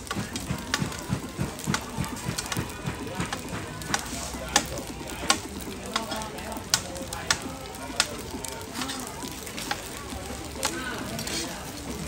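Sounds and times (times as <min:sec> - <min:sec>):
food sizzling in oil: 0:00.0 - 0:12.0
tongs and spatula scraping pan: 0:11.2 - 0:11.6.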